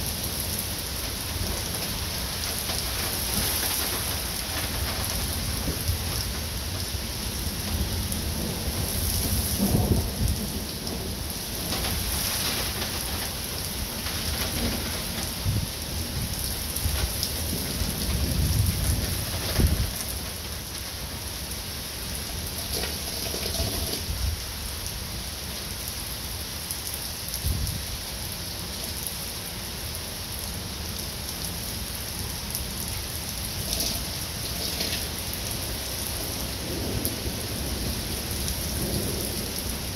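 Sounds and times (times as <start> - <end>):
rain falling on pavement: 0.0 - 39.9
rolling thunder: 2.6 - 20.5, 36.1 - 39.9.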